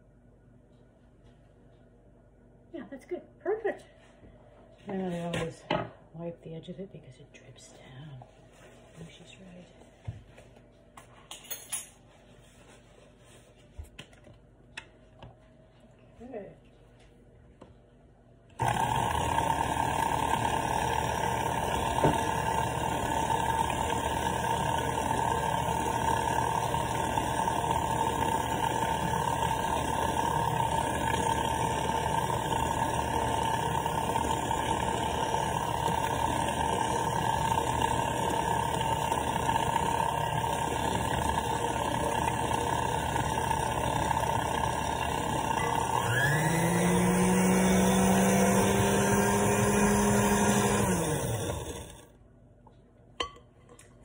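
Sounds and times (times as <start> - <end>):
electric kitchen mixer running: 18.6 - 52.2.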